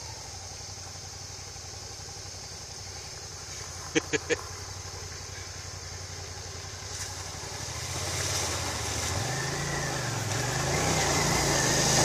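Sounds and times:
motorcycle engine running: 0.0s - 12.0s
water splashing off wheels: 3.3s - 12.0s.

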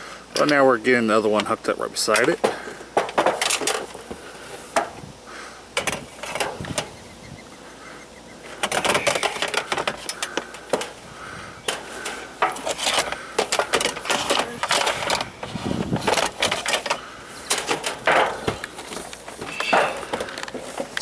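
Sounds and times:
metallic clatter: 16.0s - 21.0s.

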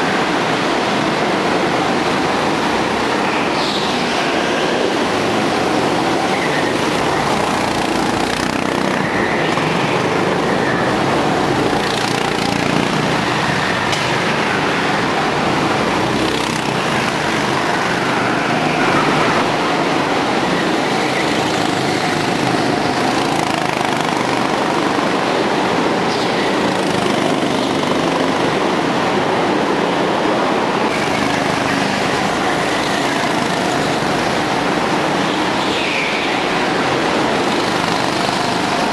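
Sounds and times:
go-kart engines revving: 0.0s - 38.9s.

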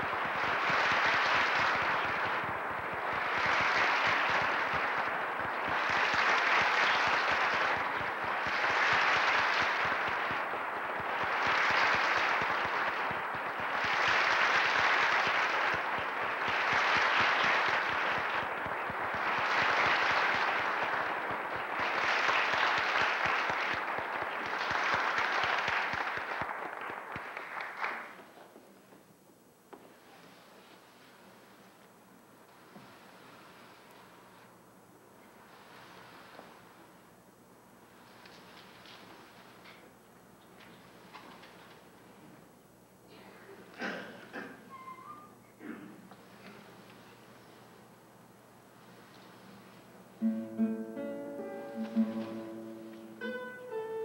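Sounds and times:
audience applauding: 0.0s - 28.4s, 50.2s - 53.7s.

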